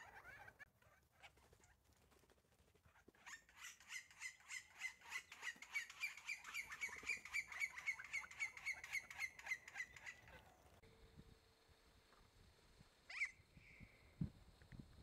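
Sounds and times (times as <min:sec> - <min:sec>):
woodpecker calling: 0:03.3 - 0:10.5, 0:13.1 - 0:13.8.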